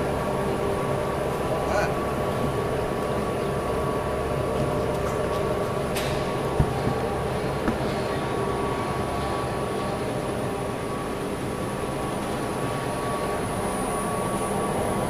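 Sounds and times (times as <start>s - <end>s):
dewatering machine drone: 0.0s - 15.0s.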